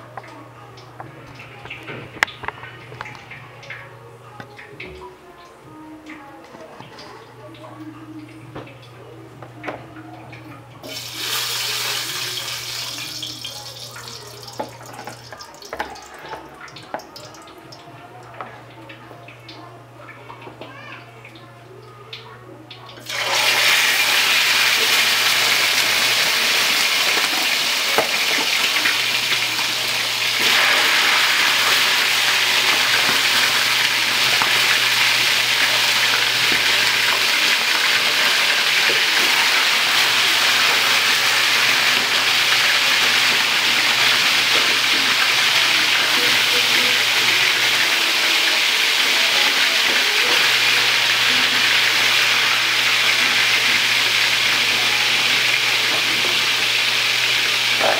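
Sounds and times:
chicken sizzling in hot oil: 0:10.8 - 0:18.2, 0:22.9 - 0:57.9.

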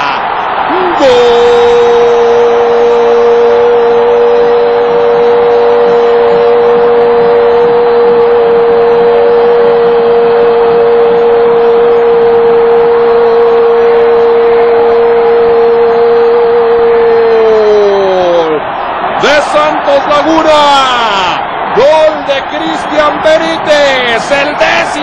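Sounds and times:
stadium crowd noise: 0:00.0 - 0:25.0.

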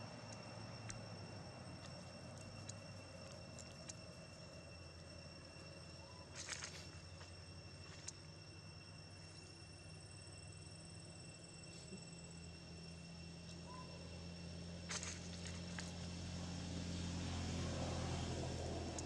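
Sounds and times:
high insect drone: 0:00.0 - 0:19.0
light ticks: 0:00.3 - 0:01.0, 0:01.8 - 0:05.2
rustle: 0:06.0 - 0:08.2.

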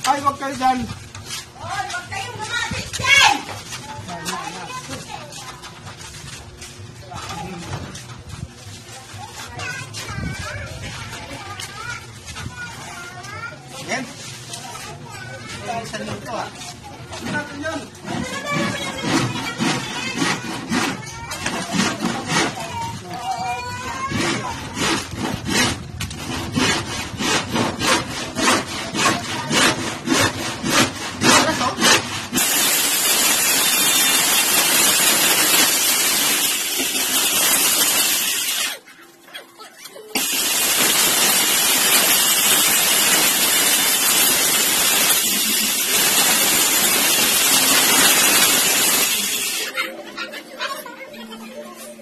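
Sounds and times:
circular saw cutting plywood: 0:18.0 - 0:22.7, 0:24.0 - 0:38.8, 0:40.2 - 0:49.8
hand saw cutting plywood: 0:18.0 - 0:22.8, 0:24.0 - 0:35.8.

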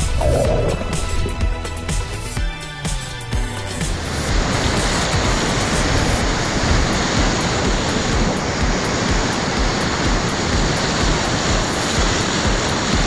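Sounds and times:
low rumble: 0:00.0 - 0:02.3
rush of river whitewater: 0:03.8 - 0:13.0.

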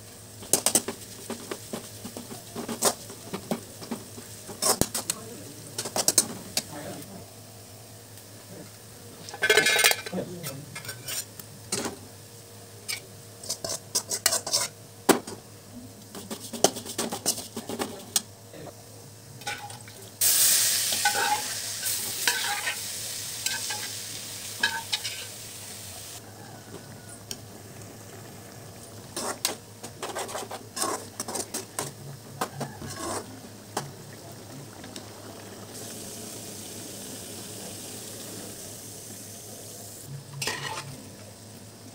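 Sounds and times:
food sizzling: 0:00.0 - 0:41.9
metal spatula scraping wok: 0:04.5 - 0:05.1, 0:10.7 - 0:11.4, 0:12.8 - 0:14.8, 0:19.4 - 0:25.4, 0:29.1 - 0:31.9, 0:32.8 - 0:33.3, 0:40.4 - 0:41.0.

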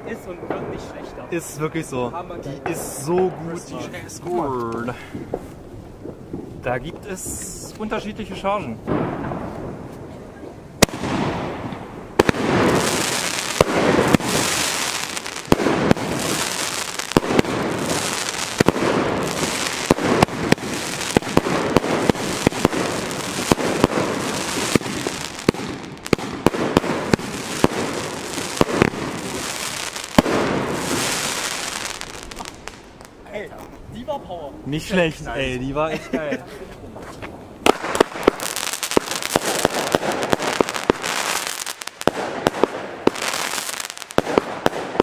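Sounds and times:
firework bursts: 0:10.8 - 0:33.3, 0:37.6 - 0:45.0
firework shells cracking: 0:10.8 - 0:33.8, 0:37.6 - 0:45.0.

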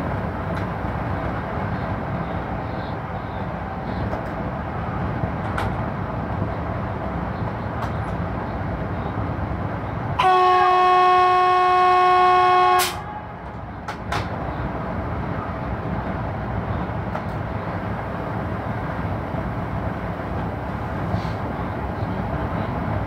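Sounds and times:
train running rumble: 0:00.0 - 0:23.0
locomotive horn blast: 0:10.2 - 0:13.4.

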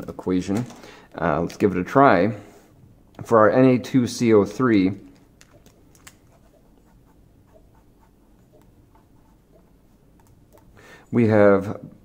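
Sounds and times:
marker writing on paper: 0:05.6 - 0:10.7.

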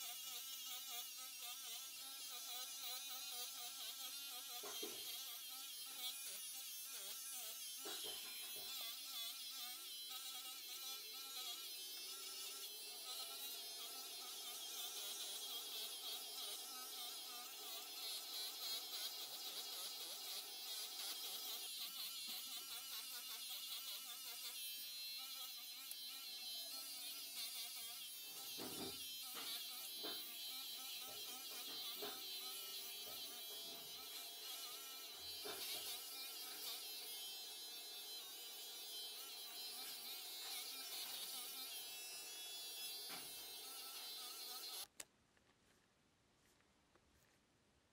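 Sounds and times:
electric hair clipper buzzing: 0:00.0 - 0:44.9.

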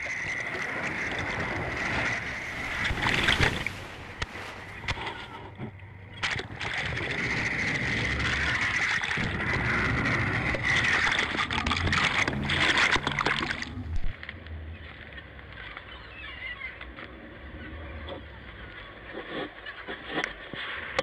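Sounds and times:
water rushing and churning: 0:00.0 - 0:14.3
boat engine drone: 0:00.0 - 0:19.6
faint gull calls: 0:14.8 - 0:20.4.

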